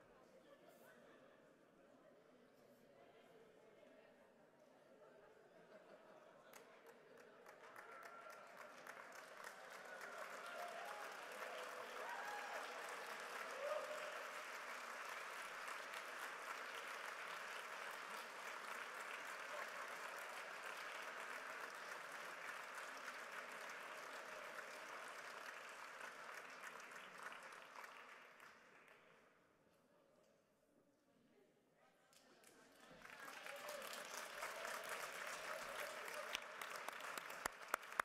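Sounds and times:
audience applauding: 7.2s - 29.1s, 32.6s - 38.0s.

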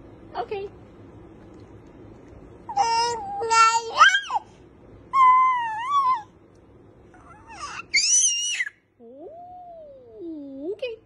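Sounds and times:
baby squealing and cooing: 5.2s - 6.3s, 7.2s - 8.8s.

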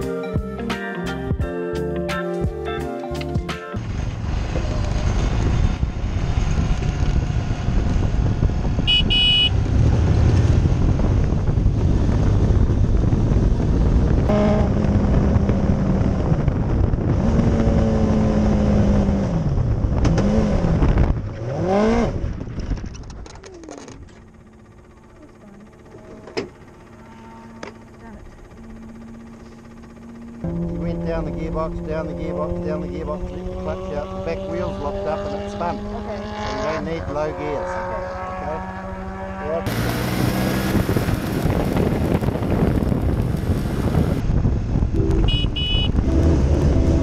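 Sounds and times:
race car engine revving: 14.2s - 22.4s, 24.7s - 44.2s, 45.0s - 47.0s.

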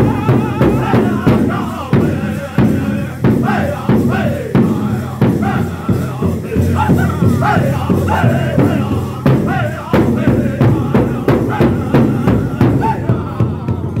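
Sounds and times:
group singing in wavering voices: 0.0s - 14.0s
large drum pounded steadily: 0.0s - 14.0s.

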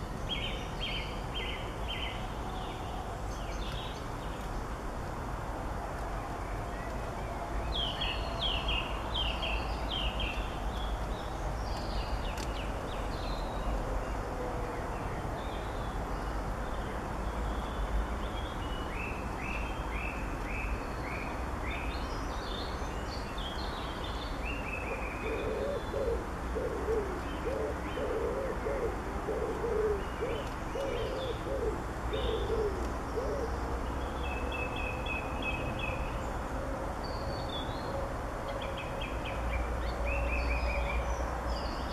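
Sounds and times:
steady background hiss: 0.0s - 41.9s
low bird calls: 24.7s - 34.2s.

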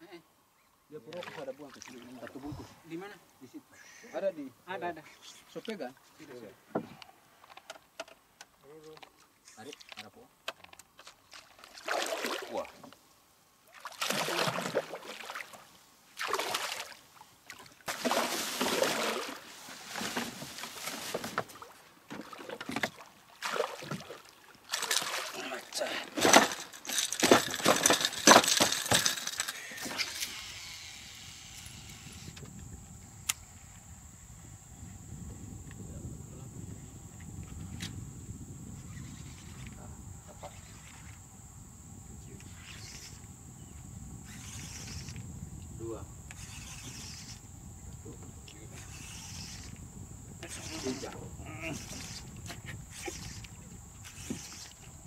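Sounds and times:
insect chorus buzzing: 0.0s - 55.0s
fish splashing at surface: 16.2s - 17.0s
brief hiss: 29.5s - 32.3s.

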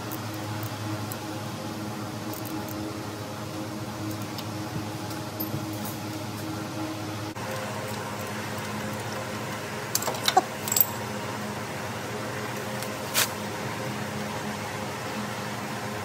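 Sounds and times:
steady low hum: 0.0s - 16.0s
metal hand tools clinking: 10.0s - 11.0s.

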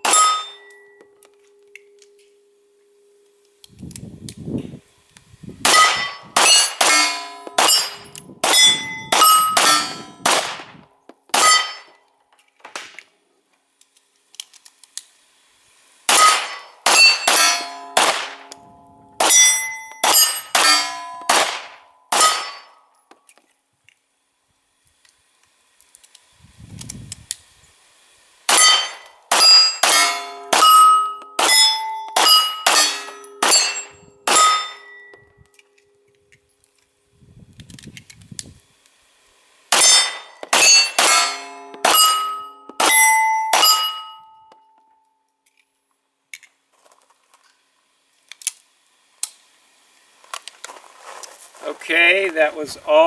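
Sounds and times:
steel plate target ringing: 0.0s - 1.2s, 5.6s - 10.7s, 11.3s - 12.0s, 16.1s - 22.9s, 28.5s - 36.1s, 39.7s - 44.8s
pistol shots: 5.6s - 11.8s, 16.1s - 18.6s, 19.2s - 22.7s, 28.5s - 35.1s, 39.7s - 44.1s.

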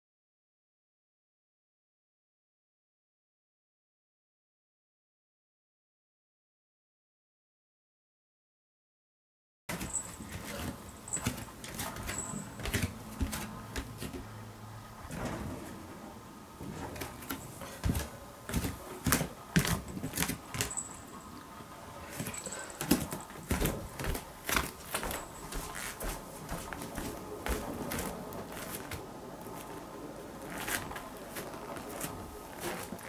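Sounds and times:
footsteps on wooden floor: 9.7s - 14.4s, 16.6s - 20.9s, 22.1s - 29.8s.

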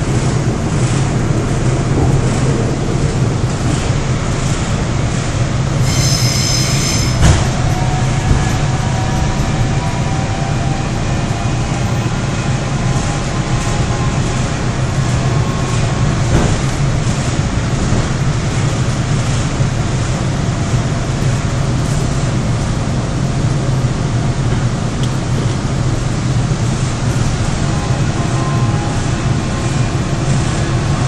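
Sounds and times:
subway train rumble: 0.0s - 31.0s
wheel squeal: 5.8s - 10.1s
sharp clunk: 7.0s - 7.5s.

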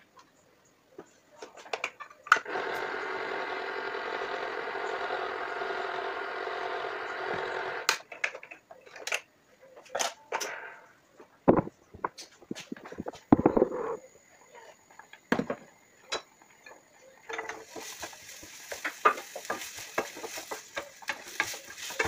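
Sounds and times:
electric can opener running: 2.3s - 7.9s, 17.4s - 22.0s.

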